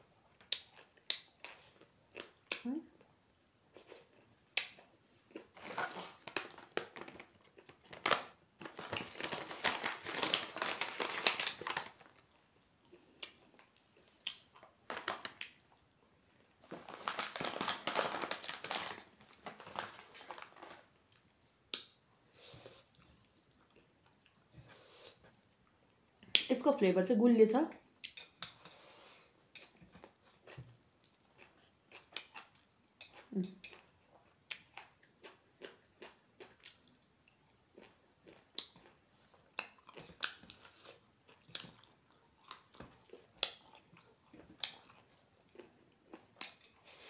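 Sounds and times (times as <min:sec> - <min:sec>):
chewing: 0:00.2 - 0:07.9, 0:19.6 - 0:26.4, 0:28.0 - 0:47.0
dry food crinkling and crackling: 0:00.3 - 0:26.7, 0:28.1 - 0:47.0.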